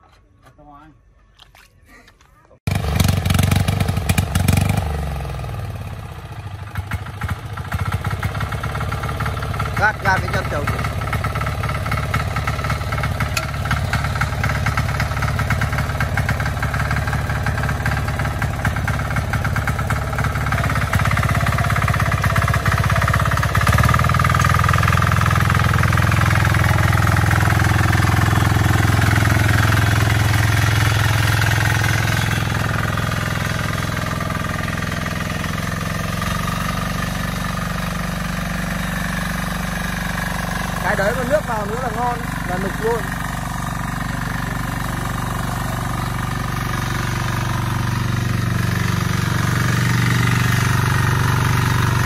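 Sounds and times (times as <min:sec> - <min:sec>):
diesel tiller engine under load: 0:02.7 - 0:52.0.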